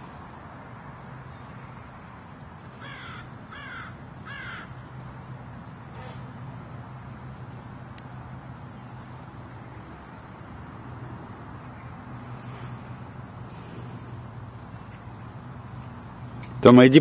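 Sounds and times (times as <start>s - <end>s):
low background hum: 0.0s - 17.0s
crow cawing: 2.8s - 4.8s.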